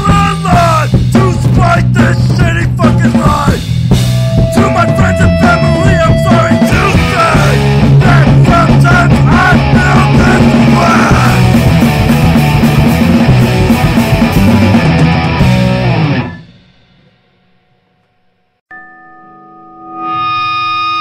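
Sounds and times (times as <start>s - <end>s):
distorted punk rock: 0.0s - 17.2s
droning electronic tone: 4.0s - 7.4s, 18.7s - 21.0s.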